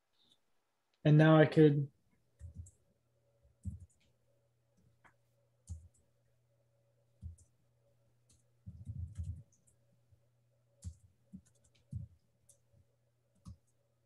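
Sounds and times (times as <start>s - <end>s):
steady low hum: 2.1s - 14.0s
keyboard typing: 2.3s - 6.3s, 7.1s - 7.6s, 8.2s - 10.0s, 10.7s - 13.9s.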